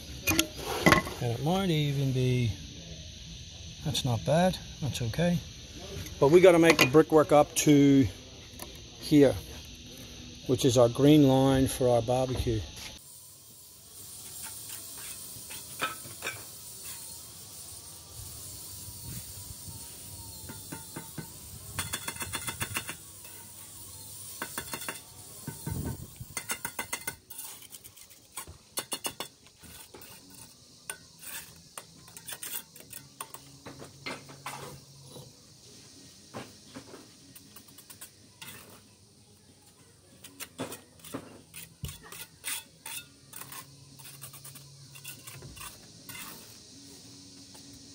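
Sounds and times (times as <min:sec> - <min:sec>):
trowel scraping mortar: 0:14.4 - 0:17.0, 0:24.5 - 0:33.5, 0:37.4 - 0:38.8, 0:40.2 - 0:46.6.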